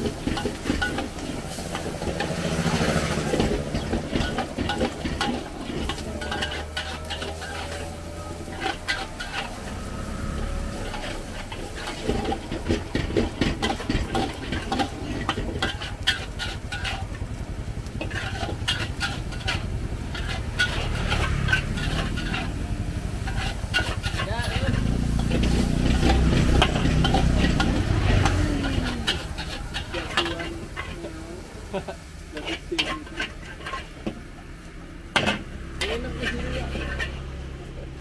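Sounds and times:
metal spatulas scraping woks: 0:00.0 - 0:37.7
gas burner rumble: 0:00.0 - 0:38.0.

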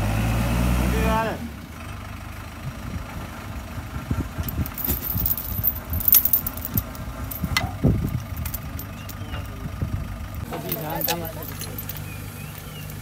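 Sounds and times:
diesel engine running: 0:00.0 - 0:13.0
steel chain clinking: 0:04.4 - 0:09.5, 0:10.3 - 0:13.0.

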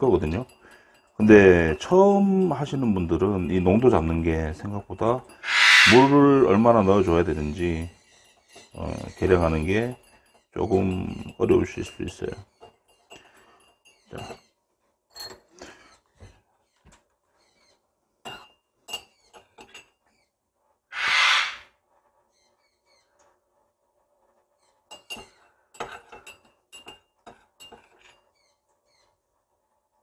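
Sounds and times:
harsh burst: 0:21.0 - 0:21.6.

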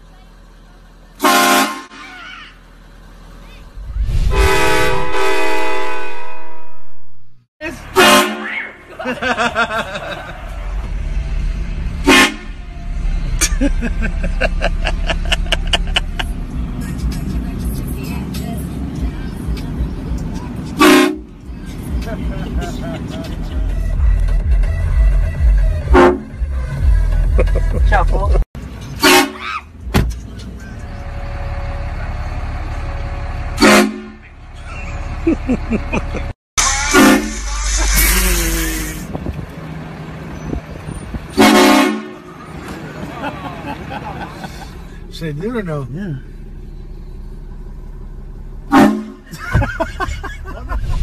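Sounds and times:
vehicle engine rumble: 0:00.0 - 0:51.0
train horn blast: 0:01.2 - 0:02.1, 0:04.0 - 0:06.9, 0:08.0 - 0:08.6, 0:12.0 - 0:12.7, 0:20.8 - 0:21.3, 0:25.8 - 0:26.4, 0:33.6 - 0:34.2, 0:36.9 - 0:39.1, 0:41.3 - 0:42.3, 0:48.7 - 0:49.3
short horn toots: 0:03.8 - 0:07.1, 0:33.6 - 0:34.2, 0:36.6 - 0:39.1, 0:48.7 - 0:49.3.

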